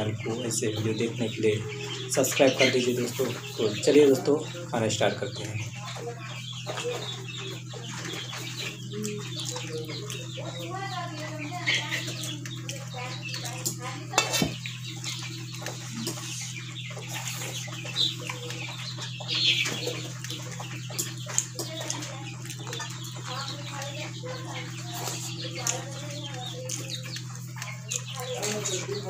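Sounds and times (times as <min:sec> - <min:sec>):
chickens clucking: 0:00.0 - 0:29.0
steady low hum: 0:00.0 - 0:29.0
hands mixing rice on steel plates: 0:06.1 - 0:29.0.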